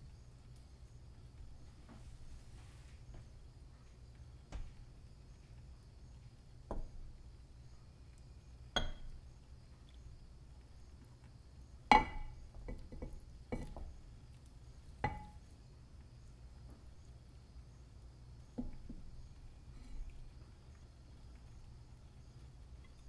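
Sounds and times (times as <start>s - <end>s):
faint low hum: 0.0s - 23.0s.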